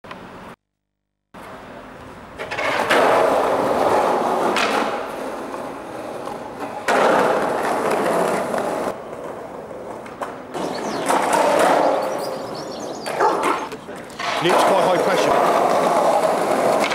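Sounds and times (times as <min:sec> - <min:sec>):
skateboard wheels rolling on concrete: 0:01.4 - 0:16.9
skateboard clacking: 0:02.3 - 0:16.9.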